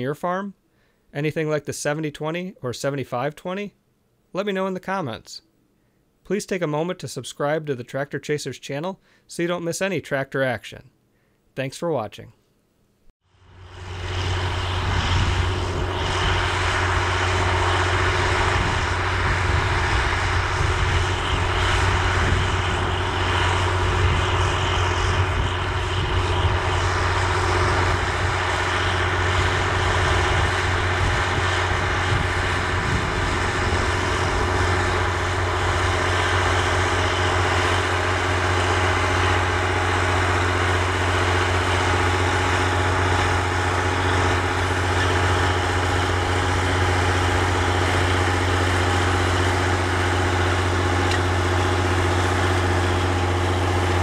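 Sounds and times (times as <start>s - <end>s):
tractor diesel engine under load: 13.4s - 54.0s.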